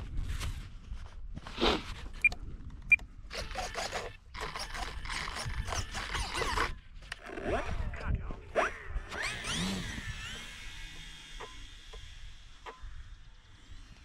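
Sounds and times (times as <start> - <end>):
rustling and scraping handling noise: 0.0 - 2.3
wind rumble on microphone: 0.0 - 3.4, 4.9 - 11.2.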